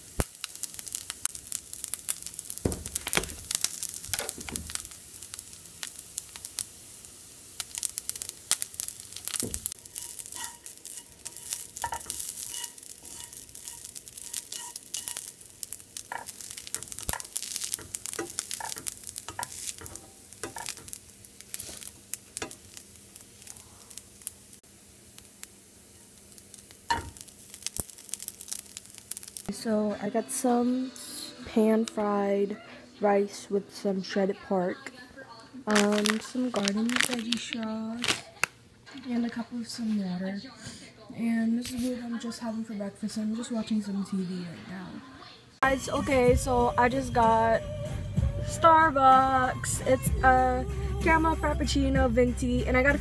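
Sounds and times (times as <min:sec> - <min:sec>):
food sizzling in a pan: 0:00.0 - 0:53.0
utensils stirring and scraping pan: 0:00.8 - 0:06.6, 0:07.6 - 0:24.5.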